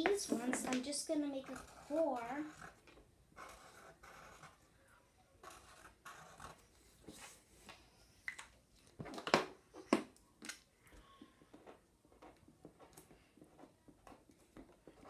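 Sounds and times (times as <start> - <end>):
marker clicks and taps: 0.0 - 1.0
marker strokes on paper: 0.0 - 2.8.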